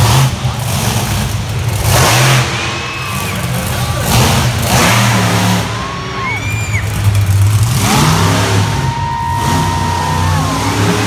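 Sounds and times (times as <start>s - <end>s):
monster truck engine revving: 0.0s - 11.0s.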